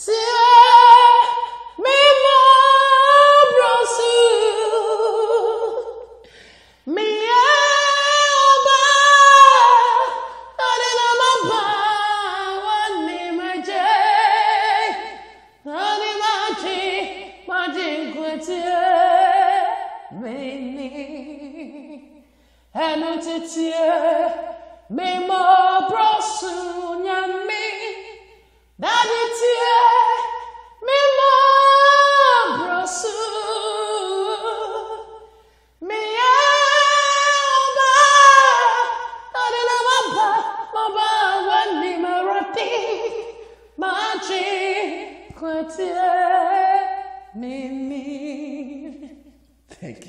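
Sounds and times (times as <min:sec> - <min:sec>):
person singing unaccompanied: 0:00.0 - 0:06.2, 0:06.9 - 0:22.0, 0:28.8 - 0:35.2.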